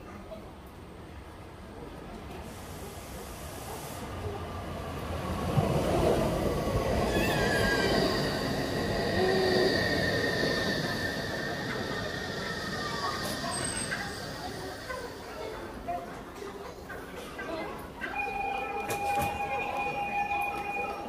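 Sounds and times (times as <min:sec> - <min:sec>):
train rumbling on rails: 0:02.2 - 0:21.0
wheels squealing: 0:06.7 - 0:14.8.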